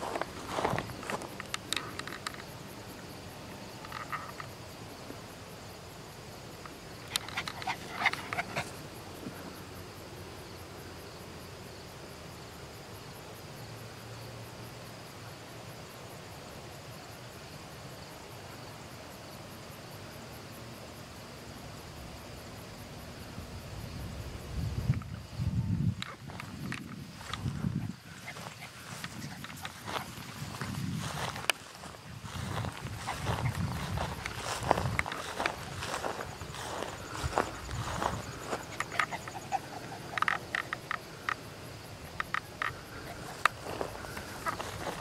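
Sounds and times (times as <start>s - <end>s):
clicks and rustles: 0.0s - 2.6s, 3.8s - 4.6s, 6.6s - 8.8s, 26.0s - 31.9s, 32.6s - 41.4s
frogs and insects chorus: 0.0s - 45.0s.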